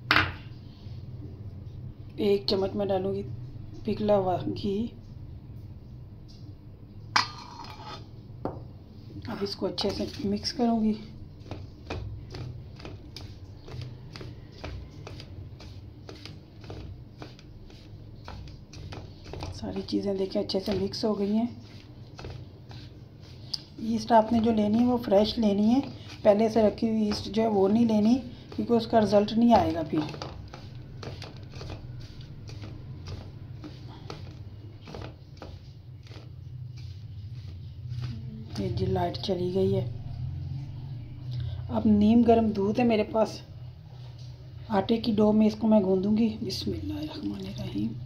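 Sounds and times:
low steady hum: 0:00.0 - 0:48.0
dry rustling of flour: 0:09.4 - 0:39.8.

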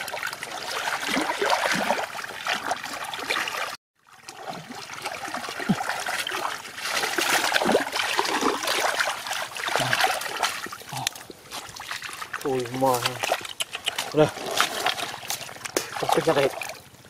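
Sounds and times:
hands splashing in shallow water: 0:05.3 - 0:16.8
hands squelching into mud: 0:05.4 - 0:16.8.

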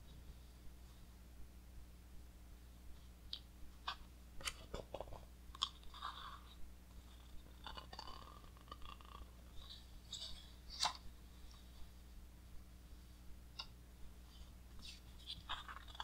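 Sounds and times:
soft paper rustling: 0:14.3 - 0:16.0
book pages turning: 0:14.7 - 0:16.0.

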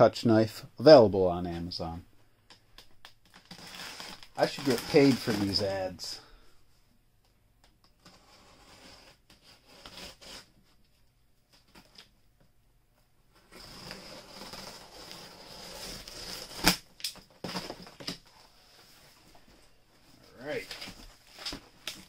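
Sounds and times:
cardboard flaps rustling: 0:03.2 - 0:05.8
knife scraping through tape: 0:08.0 - 0:10.5, 0:13.5 - 0:16.8.

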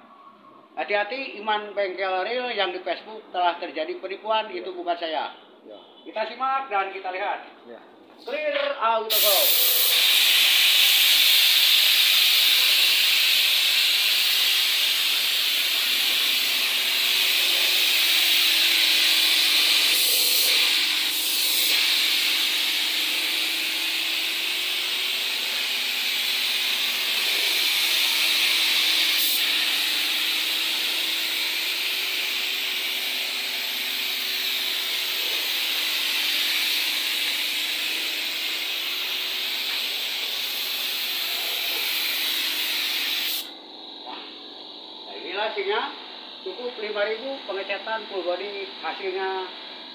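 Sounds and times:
spray gun hissing: 0:09.1 - 0:43.6.

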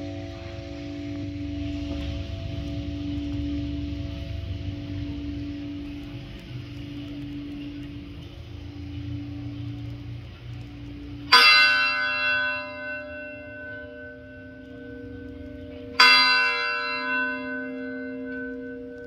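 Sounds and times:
church bell ringing: 0:00.0 - 0:19.0.

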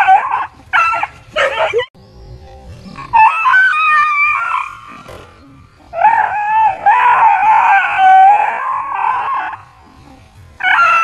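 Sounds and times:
dog howling: 0:03.1 - 0:05.0, 0:05.9 - 0:09.7, 0:10.6 - 0:11.0.

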